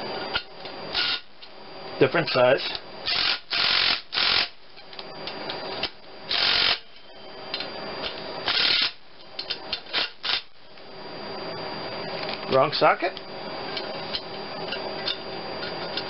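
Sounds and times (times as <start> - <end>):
cordless driver bursts: 3.1 - 4.5, 8.5 - 9.0.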